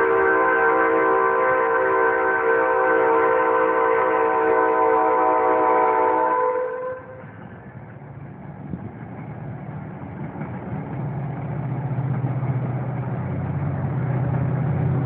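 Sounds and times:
train air horn blast: 0.0 - 7.3.

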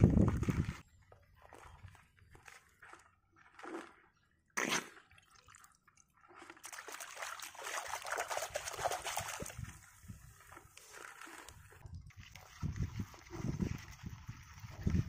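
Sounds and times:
hand sloshing in mud and water: 1.4 - 15.0.

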